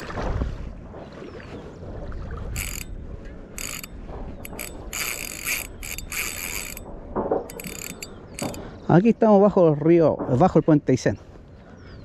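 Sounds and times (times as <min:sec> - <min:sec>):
fishing reel drag buzzing: 0:02.6 - 0:02.9, 0:03.5 - 0:06.9, 0:07.5 - 0:08.6.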